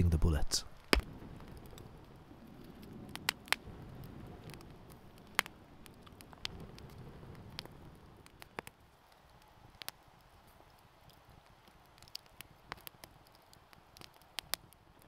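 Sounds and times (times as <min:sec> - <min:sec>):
low rush of flames: 0:00.0 - 0:15.0
wood fire crackling and popping: 0:00.0 - 0:15.0.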